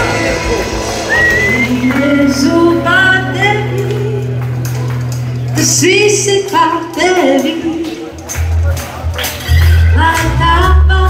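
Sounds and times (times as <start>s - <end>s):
worship song over loudspeakers: 0.0s - 4.4s
person singing: 0.0s - 4.5s, 9.5s - 11.0s
band holding low note: 0.0s - 5.9s.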